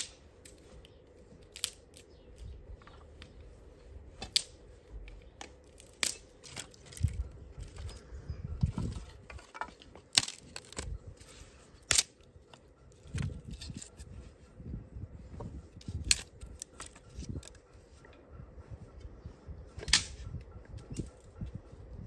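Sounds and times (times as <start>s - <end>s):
wooden sticks clacking together: 0.0s - 3.4s, 4.2s - 8.0s, 8.6s - 11.0s, 15.8s - 17.6s
sticks scraping against ground: 0.0s - 14.4s, 15.4s - 17.6s.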